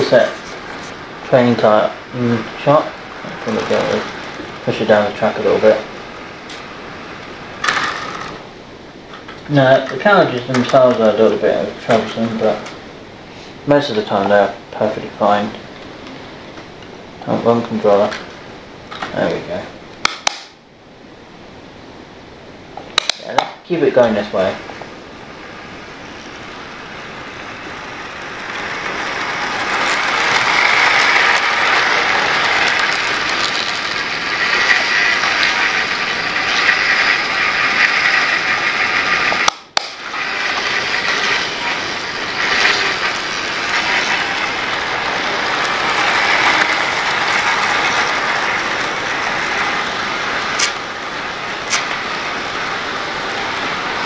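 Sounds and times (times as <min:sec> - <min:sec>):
model train rattling on track: 0:26.3 - 0:54.0
sharp clicks: 0:50.6 - 0:50.8, 0:51.7 - 0:51.9.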